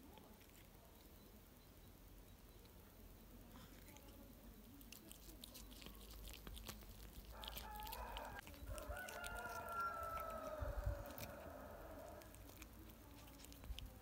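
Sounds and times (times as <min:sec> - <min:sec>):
cat chewing and tearing: 0:00.0 - 0:01.2, 0:03.7 - 0:14.0
rooster crowing: 0:07.3 - 0:12.4.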